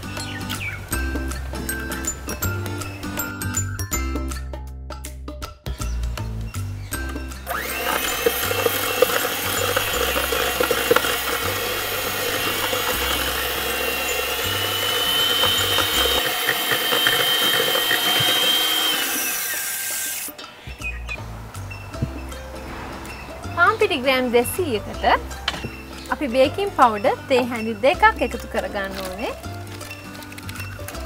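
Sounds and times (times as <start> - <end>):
electric hand mixer whining: 7.4 - 20.4.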